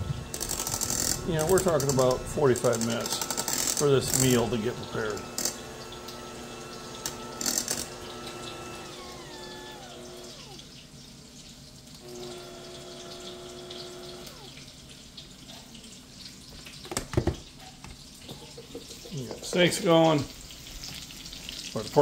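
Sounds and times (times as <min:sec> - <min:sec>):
electric hand mixer whining: 0:00.0 - 0:10.8, 0:12.0 - 0:14.7.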